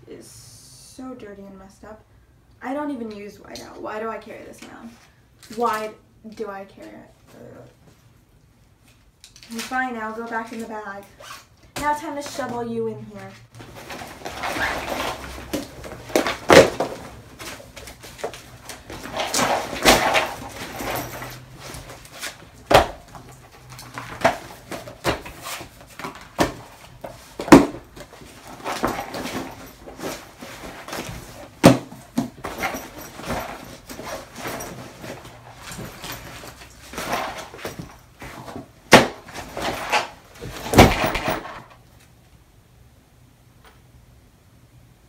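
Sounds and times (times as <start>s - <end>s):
backpack and paper rustling: 13.2s - 41.6s
notebooks thudding into bag: 13.6s - 41.7s.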